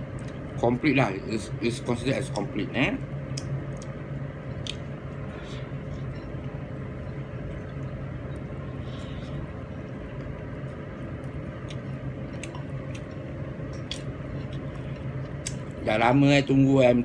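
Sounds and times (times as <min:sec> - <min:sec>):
low background hum: 0:00.0 - 0:17.0
soft chewing: 0:03.3 - 0:15.8.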